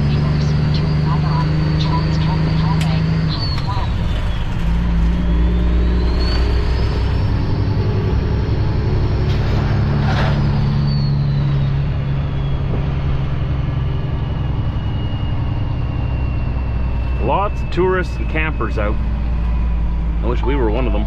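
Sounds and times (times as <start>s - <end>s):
diesel truck engine accelerating: 0.0s - 21.0s
high whine: 10.5s - 21.0s.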